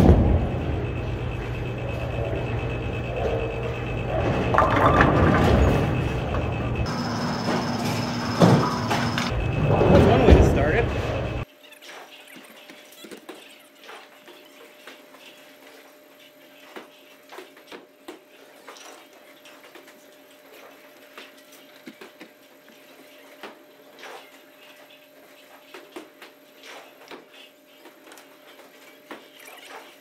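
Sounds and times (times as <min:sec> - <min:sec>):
steady low hum: 0:00.0 - 0:11.5.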